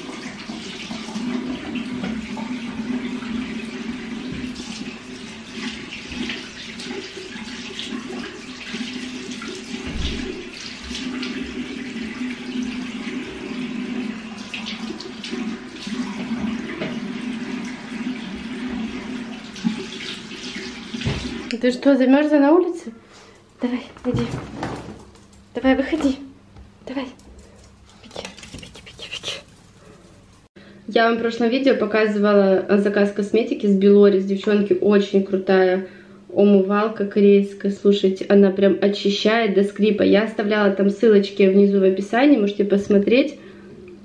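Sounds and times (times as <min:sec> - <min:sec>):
tap water splashing: 0:00.0 - 0:21.6.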